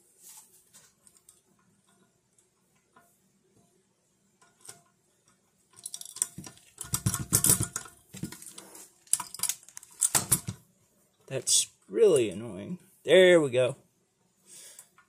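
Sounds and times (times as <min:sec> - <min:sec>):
metal parts rattling and clattering: 0:05.7 - 0:10.6.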